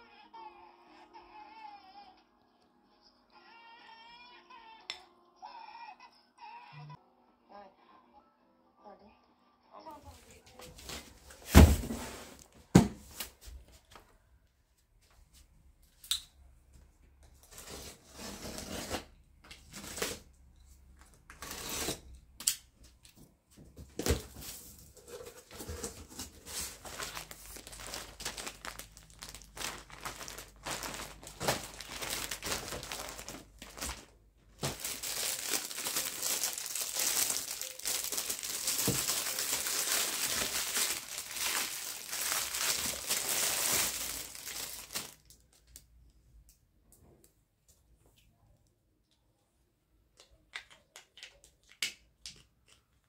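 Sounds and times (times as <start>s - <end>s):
plastic bags crinkling: 24.4s - 45.8s.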